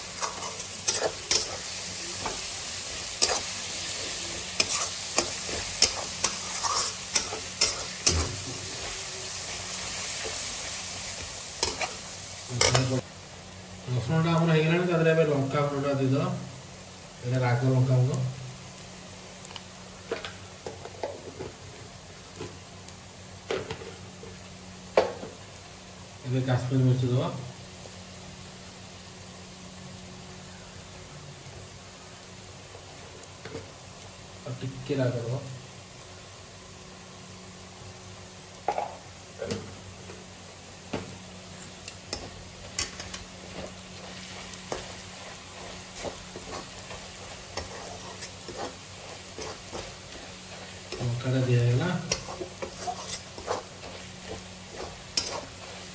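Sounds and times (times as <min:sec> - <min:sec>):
spatula scraping a pan: 0:00.0 - 0:13.0, 0:42.1 - 0:55.9
onions frying in oil: 0:00.0 - 0:55.9.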